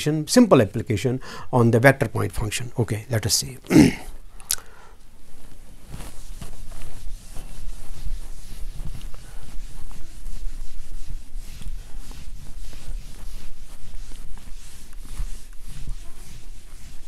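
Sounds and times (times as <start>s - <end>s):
eraser rubbing on whiteboard: 5.9s - 17.0s.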